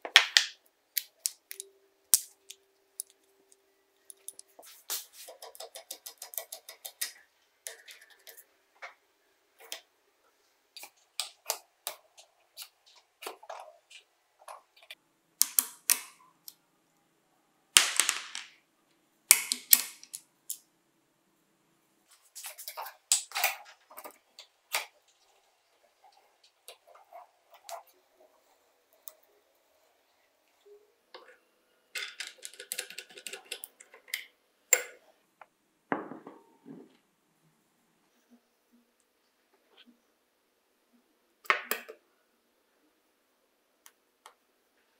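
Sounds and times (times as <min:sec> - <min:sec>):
sharp metal snaps: 0:19.3 - 0:20.6.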